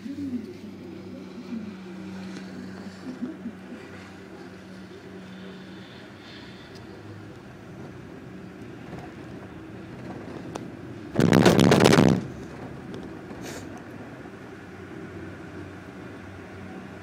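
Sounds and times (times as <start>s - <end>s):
low hum of moving cabin: 0.0s - 17.0s
loud rattling clatter: 8.8s - 13.4s.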